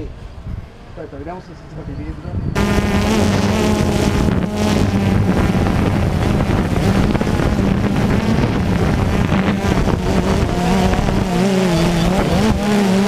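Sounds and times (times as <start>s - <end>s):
wind on microphone: 2.0s - 13.0s
drone propellers humming: 2.6s - 13.0s.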